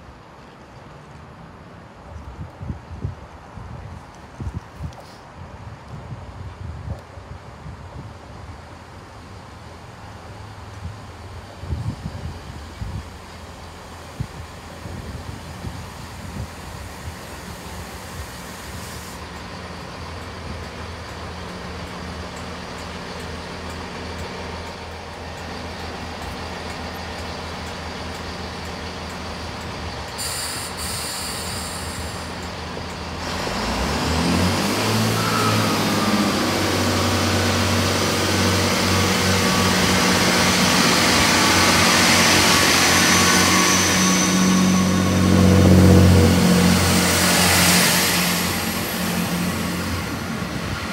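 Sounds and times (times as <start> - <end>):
diesel train engines humming: 6.4 - 50.9
train revving and pulling away: 8.4 - 50.9.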